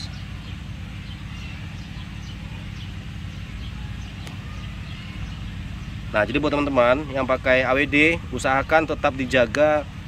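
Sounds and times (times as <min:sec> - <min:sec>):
faint high chirps: 0:00.0 - 0:09.2
low background hum: 0:00.0 - 0:10.0.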